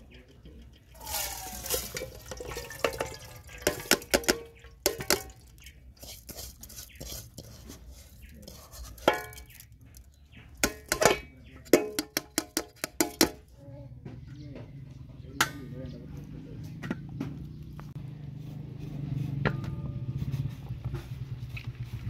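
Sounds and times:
metal pot knocking and scraping: 0.8 - 14.4, 19.4 - 21.3.

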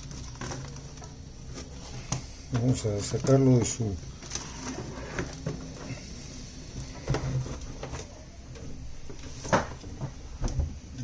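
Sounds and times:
cardboard box rustling and scraping: 4.2 - 6.2.

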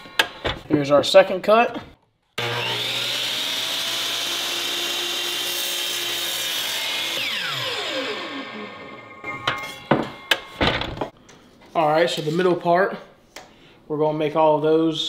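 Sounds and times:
miter saw cutting wood: 2.4 - 10.6
saw blade winding down: 2.4 - 10.6.

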